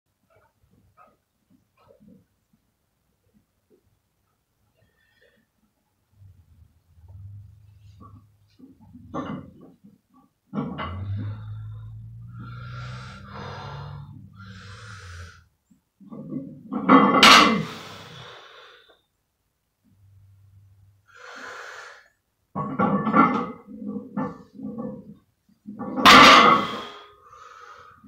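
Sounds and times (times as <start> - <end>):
heavy breathing: 10.9 - 15.5, 26.6 - 28.0.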